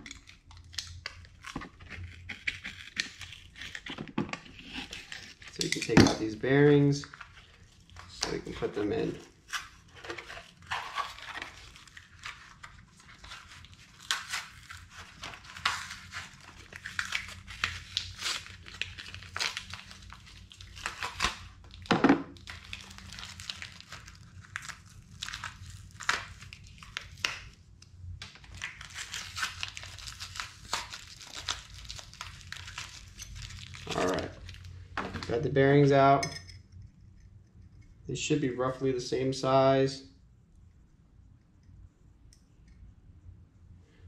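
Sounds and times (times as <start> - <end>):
packaging wrap crinkling: 0.0 - 27.6, 28.2 - 35.4.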